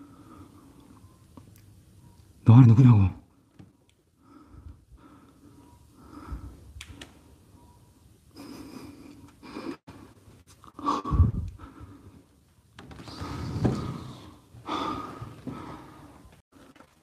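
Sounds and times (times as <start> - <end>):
person breathing: 0.0 - 1.0, 4.2 - 7.3, 8.3 - 12.4, 13.0 - 16.7.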